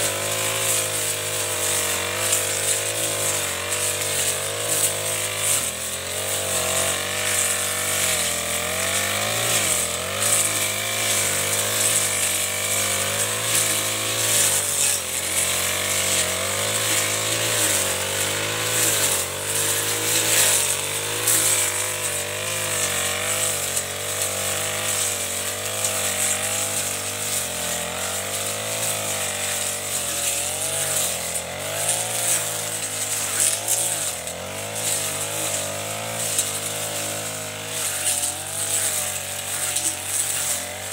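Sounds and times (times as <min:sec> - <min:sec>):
brush cutter engine cutting grass: 0:00.0 - 0:40.9.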